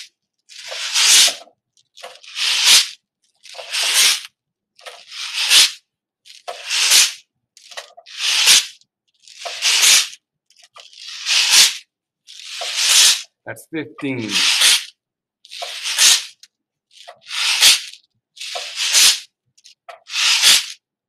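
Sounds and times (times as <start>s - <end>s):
steel shot rattling down a tube: 0.6s - 2.9s, 15.5s - 16.4s, 17.0s - 19.2s, 19.9s - 20.7s.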